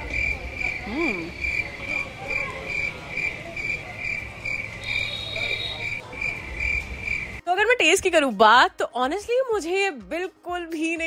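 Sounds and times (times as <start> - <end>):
crickets chirping: 0.0 - 7.4
woman humming: 0.8 - 1.4.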